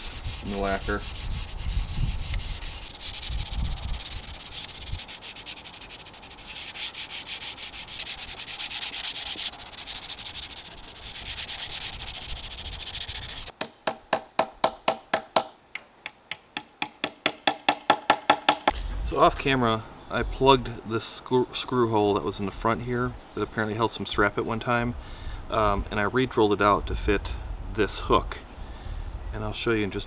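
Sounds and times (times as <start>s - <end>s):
sandpaper rubbing on wood: 0.0s - 13.5s.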